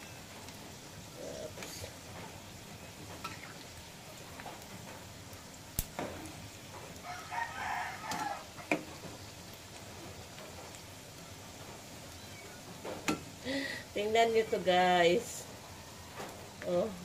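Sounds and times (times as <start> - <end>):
fat sizzling in hot oil: 0.0 - 17.0
rooster crowing: 7.0 - 8.7.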